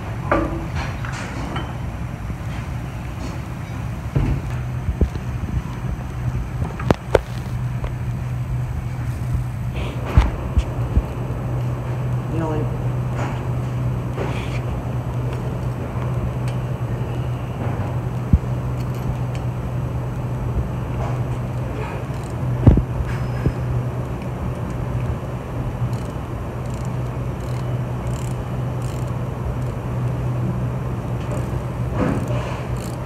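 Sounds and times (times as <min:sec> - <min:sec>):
shop machinery hum: 0:00.0 - 0:33.0
hand wrench clicking and knocking: 0:25.9 - 0:29.7, 0:31.3 - 0:33.0.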